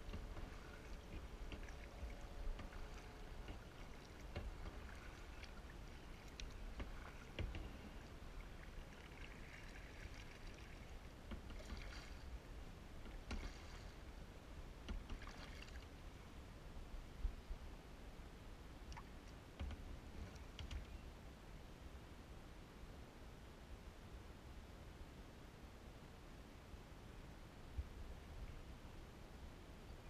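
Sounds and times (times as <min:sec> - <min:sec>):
paddle dipping and swishing: 0:00.0 - 0:16.2
water drips: 0:00.1 - 0:12.2.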